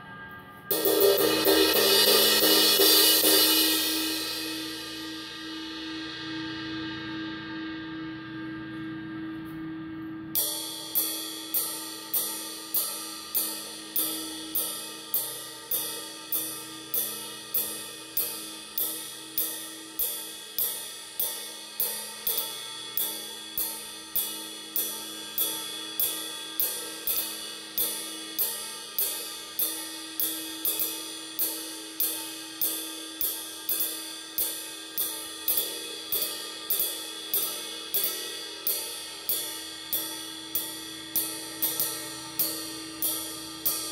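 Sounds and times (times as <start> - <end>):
ride cymbal struck with drumstick: 0.6 - 7.8, 10.3 - 43.9.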